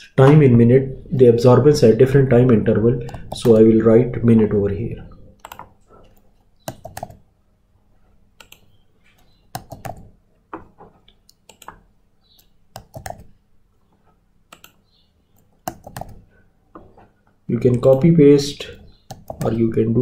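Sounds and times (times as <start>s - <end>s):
computer keyboard typing: 3.0s - 3.7s, 5.4s - 7.2s, 8.4s - 10.2s, 11.2s - 13.4s, 14.5s - 14.8s, 15.4s - 16.3s, 18.7s - 19.6s.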